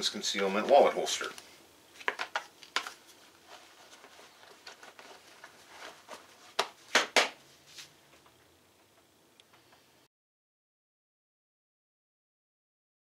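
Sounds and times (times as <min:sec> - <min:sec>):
soft rustling of fabric: 0:00.2 - 0:08.3
hands brushing denim: 0:03.1 - 0:06.9.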